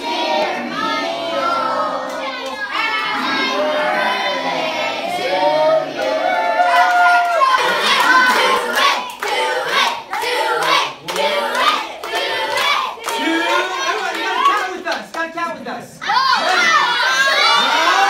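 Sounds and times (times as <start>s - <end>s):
children shouting and cheering: 0.0s - 4.8s, 5.5s - 14.8s, 16.0s - 18.0s
children singing: 0.0s - 6.7s
loud uneven clapping: 6.8s - 15.4s.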